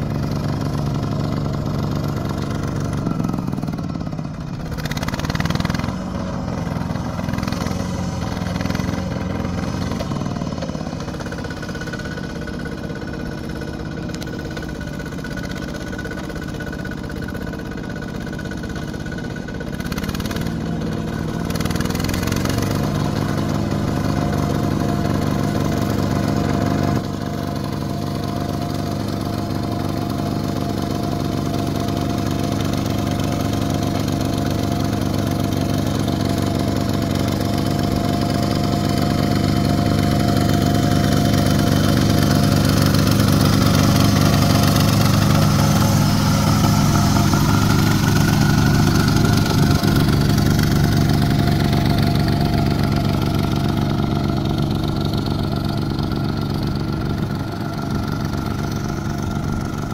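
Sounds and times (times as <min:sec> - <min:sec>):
walking tractor engine running: 0:00.0 - 0:59.9.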